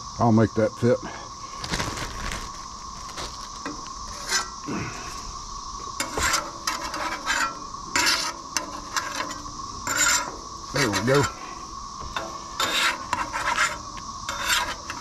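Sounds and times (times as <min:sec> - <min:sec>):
steady background hiss: 0:00.0 - 0:15.0
metal spatula scraping griddle: 0:04.1 - 0:04.5, 0:06.0 - 0:11.4, 0:12.2 - 0:15.0.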